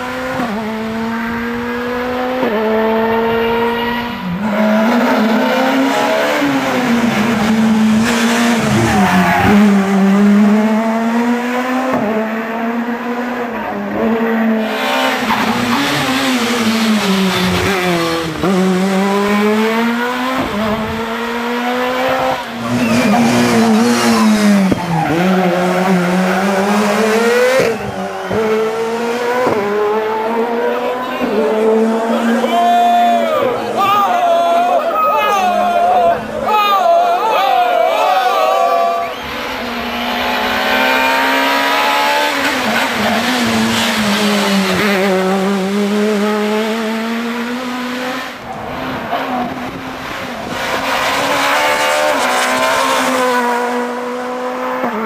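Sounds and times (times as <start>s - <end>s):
rally car engine revving: 0.0s - 34.8s, 38.8s - 55.0s.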